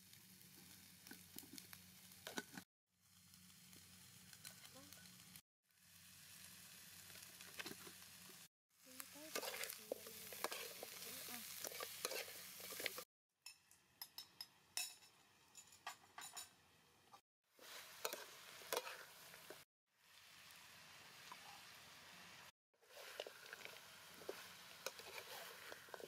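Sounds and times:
chicken feet sizzling in a wok: 0.0 - 13.1, 17.5 - 26.0
metal spatula scraping a wok: 9.2 - 13.0, 17.6 - 19.6, 22.8 - 26.0.

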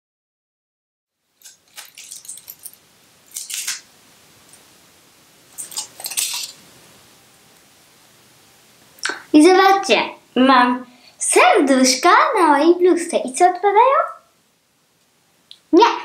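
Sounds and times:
aluminium foil crinkling: 1.3 - 4.6, 5.5 - 6.8
paper stickers peeled off: 3.3 - 3.9.

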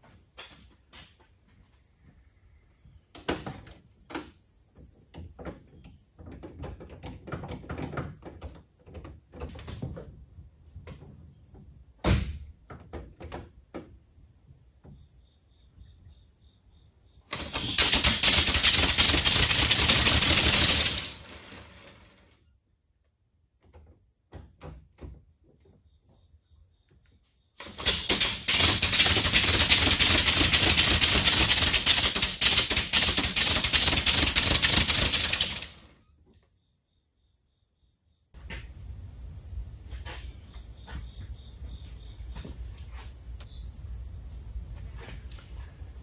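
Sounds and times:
thump: 12.0 - 13.9
compressed-air engine pulsing hiss: 17.3 - 22.1, 27.6 - 35.8.

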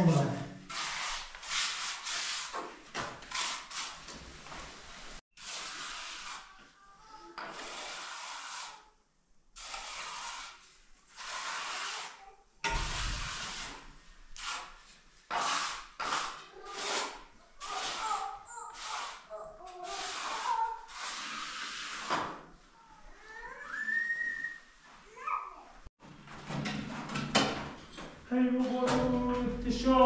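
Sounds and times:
trowel scraping wet cement: 5.4 - 6.6, 9.6 - 22.2.

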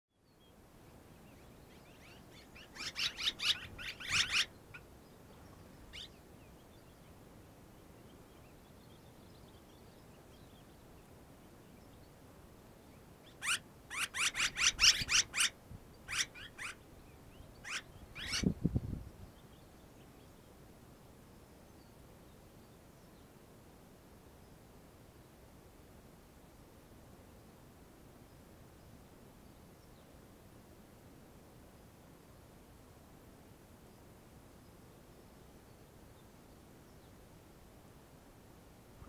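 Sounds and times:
swallows chirping: 1.3 - 7.0.

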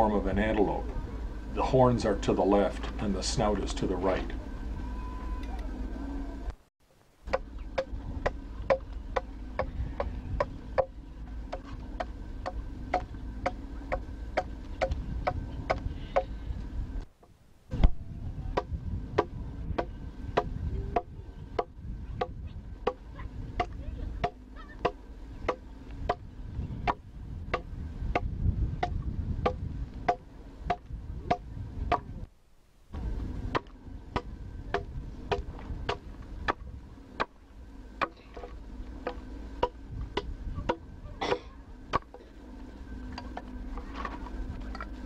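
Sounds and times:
low hum: 0.0 - 45.0
adze chopping wood: 7.3 - 10.9, 23.6 - 26.2, 33.5 - 36.6.

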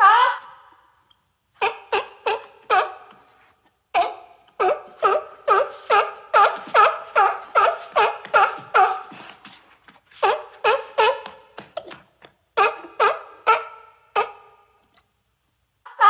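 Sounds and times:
seal barking: 1.6 - 3.3, 4.0 - 9.4, 10.2 - 11.5, 12.6 - 14.7.

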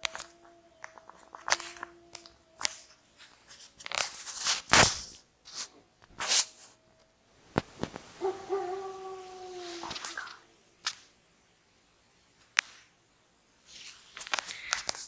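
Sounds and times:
distant wolf howl: 0.0 - 4.0, 8.1 - 10.7
rustling and crunching: 0.0 - 11.1, 13.6 - 15.0.

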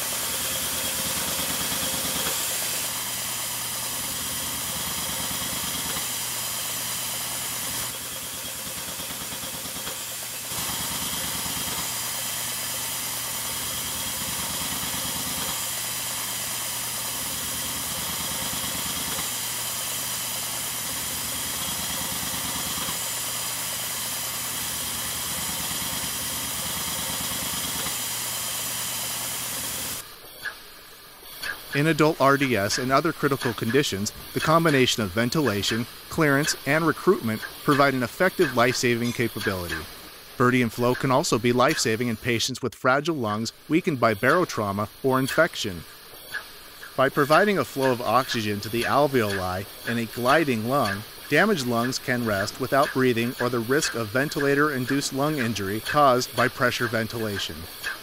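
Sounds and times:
steady airflow hiss: 30.0 - 58.0
rapid puttering gas pulses: 43.3 - 58.0.

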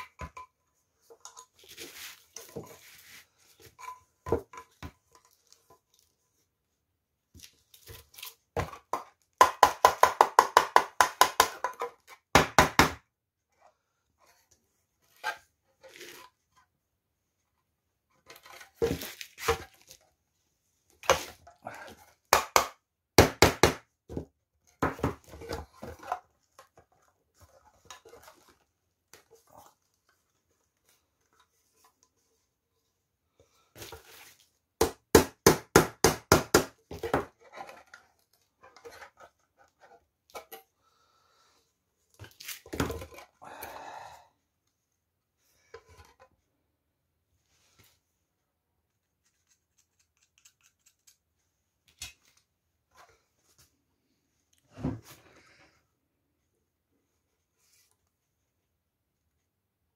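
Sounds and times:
scraping and rubbing: 1.4 - 3.8.

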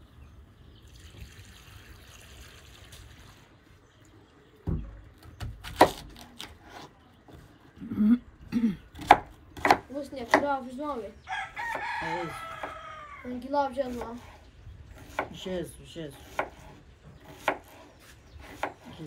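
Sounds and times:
rooster crowing: 11.3 - 13.3
knife cutting onion on board: 16.2 - 19.0.

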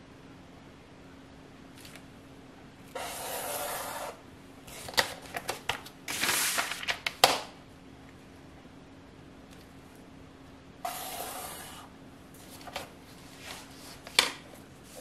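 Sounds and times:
marker scratching along a ruler: 2.9 - 4.2, 10.8 - 11.9.

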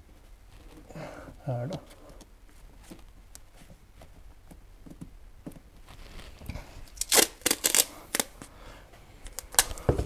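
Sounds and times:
adhesive tape ripping: 6.0 - 8.4, 9.2 - 9.8.

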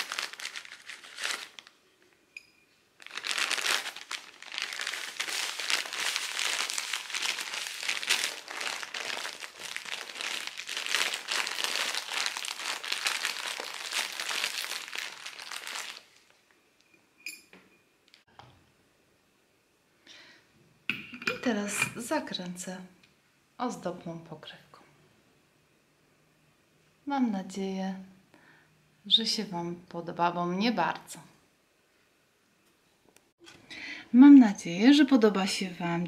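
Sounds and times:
plastic wrapping crinkling: 0.0 - 2.2, 3.0 - 16.5.

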